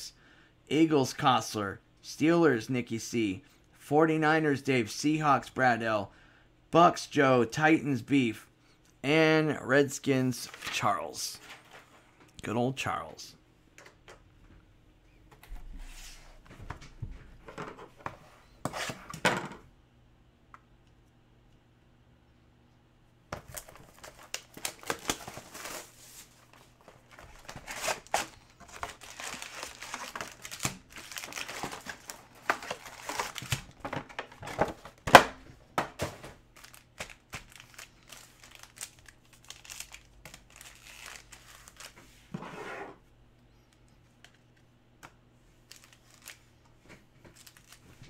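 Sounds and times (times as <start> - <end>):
card packs handling: 23.3 - 42.0, 45.6 - 46.6, 47.2 - 48.0
plastic wrap crinkling and tearing: 23.4 - 26.0, 27.1 - 33.8, 36.5 - 42.0, 45.7 - 46.4, 47.3 - 48.0.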